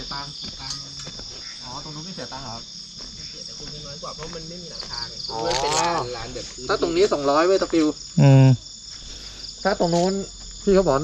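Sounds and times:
insects chirring: 0.0 - 11.0
person's voice: 3.5 - 8.6.

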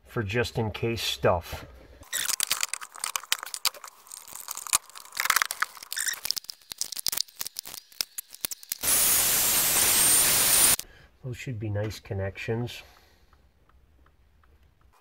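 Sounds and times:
plastic connectors clicking and scraping: 2.0 - 8.9.

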